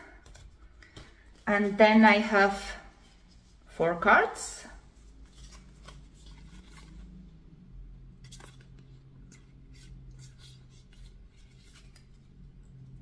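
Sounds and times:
low steady hum: 0.0s - 13.0s
cards shuffling: 0.2s - 1.4s, 5.1s - 7.2s, 8.2s - 12.3s.

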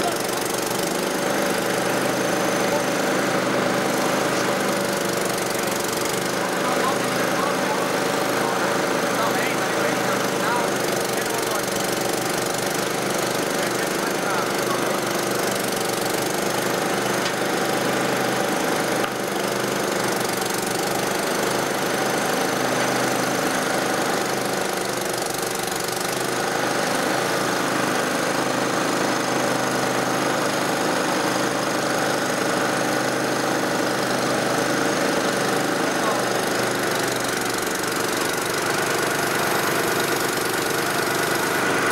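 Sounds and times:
crane engine running: 0.0s - 41.9s.

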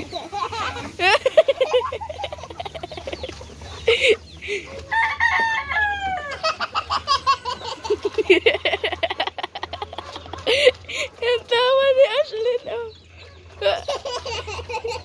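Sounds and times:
chickens clucking: 0.0s - 15.0s
rooster crowing: 4.9s - 6.5s.

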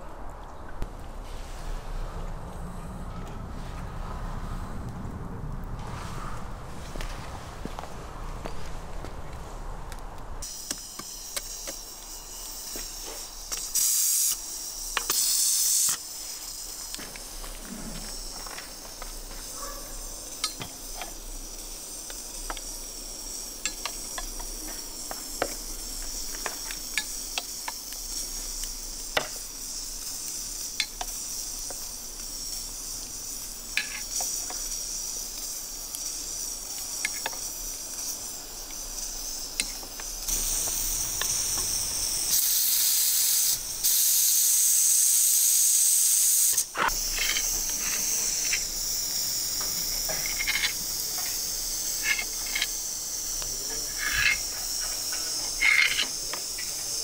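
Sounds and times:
coals sizzling: 0.0s - 57.0s
metal skewers clinking on grill: 49.5s - 52.8s.

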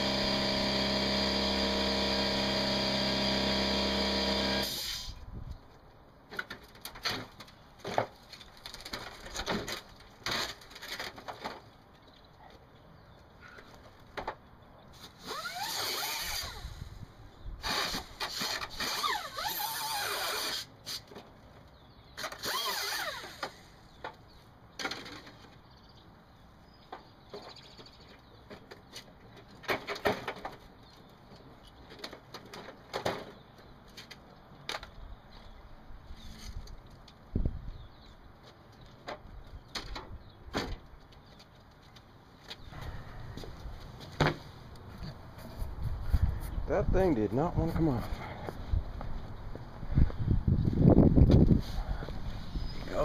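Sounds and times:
air-powered cutting tool on sheet metal: 0.0s - 5.2s, 15.2s - 16.8s.

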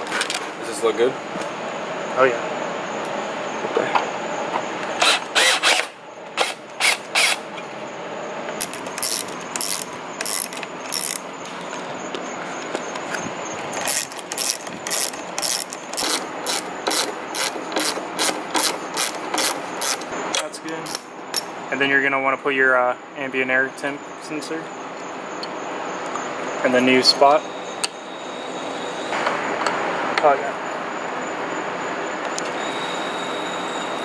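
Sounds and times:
ratchet wrench clicking: 8.6s - 11.2s, 13.8s - 21.5s.

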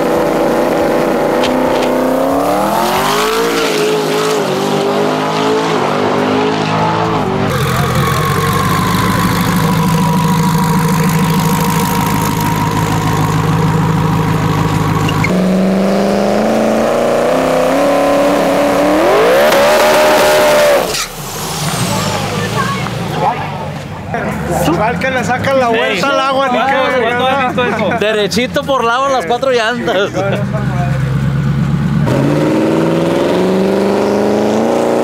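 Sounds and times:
truck engine revving hard: 0.0s - 23.7s, 30.9s - 35.0s.

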